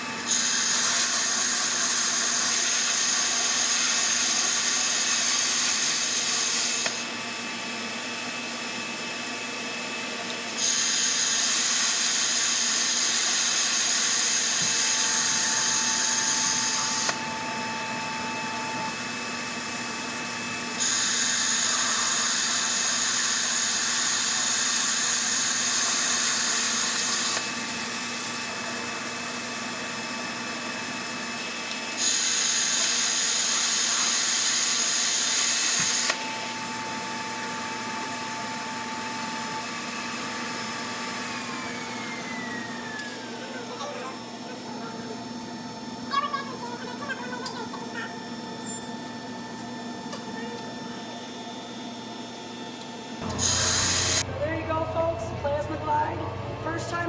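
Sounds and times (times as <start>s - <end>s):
plasma cutter hissing: 0.3s - 7.0s, 20.8s - 27.4s, 53.3s - 54.2s
steady hum: 53.1s - 57.0s.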